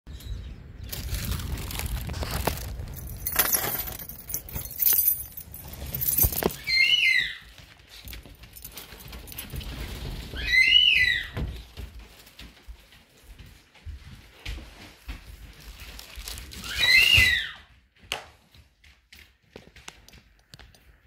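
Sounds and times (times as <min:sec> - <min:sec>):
keys jangling in door lock: 0:02.8 - 0:06.9, 0:08.1 - 0:09.8.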